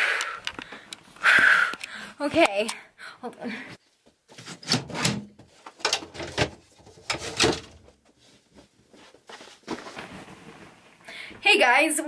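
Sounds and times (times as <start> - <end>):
dresser drawer opening and shutting: 4.4 - 7.9.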